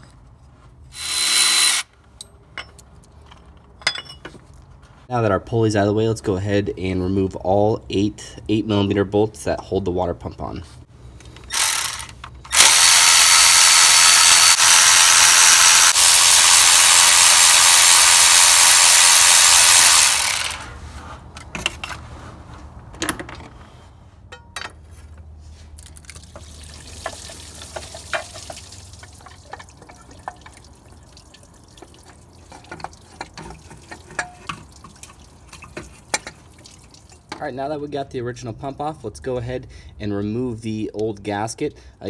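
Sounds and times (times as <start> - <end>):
electric ratchet running: 1.0 - 1.9, 11.5 - 20.6.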